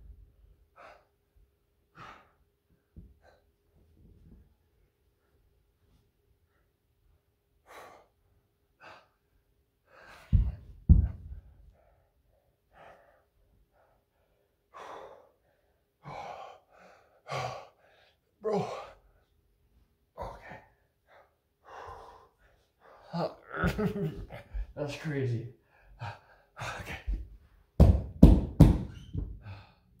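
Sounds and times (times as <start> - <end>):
man breathing heavily: 0.7 - 3.8, 7.6 - 19.3, 20.1 - 24.8, 25.5 - 27.5, 29.2 - 30.0
man grunting: 18.4 - 19.0, 23.1 - 24.2.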